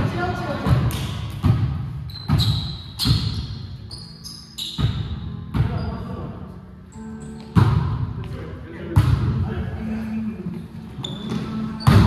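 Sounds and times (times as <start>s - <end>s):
sneakers squeaking on gym floor: 0.7s - 8.3s, 10.9s - 12.0s.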